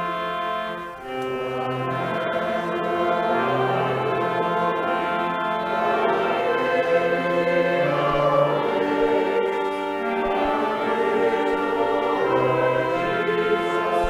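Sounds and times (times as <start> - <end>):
church choir singing: 0.0 - 14.0.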